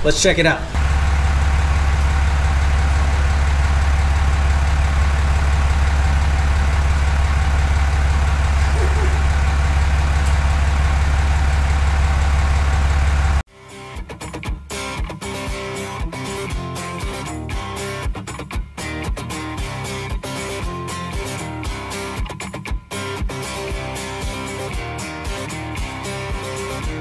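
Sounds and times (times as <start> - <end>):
truck engine idling: 0.7 - 13.4.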